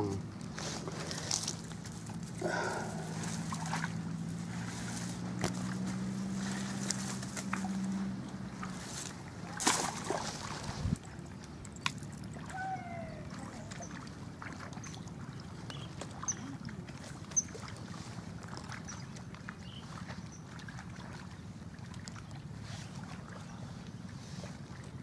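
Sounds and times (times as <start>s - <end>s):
fishing pole swishing rustle: 0.5s - 11.0s.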